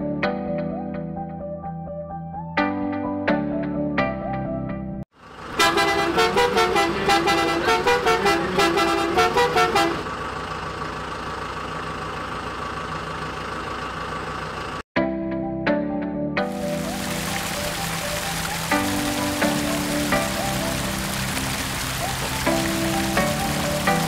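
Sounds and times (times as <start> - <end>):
truck engine drone: 5.1 - 14.8, 16.6 - 24.0
truck horn tooting: 5.5 - 10.1.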